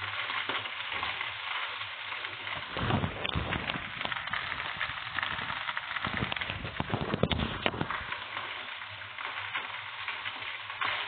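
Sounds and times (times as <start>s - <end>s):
food sizzling in a frying pan: 0.0s - 11.0s.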